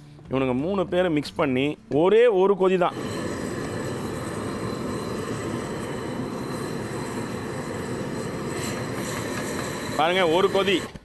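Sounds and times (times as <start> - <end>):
gas stove burner running: 2.9 - 11.0.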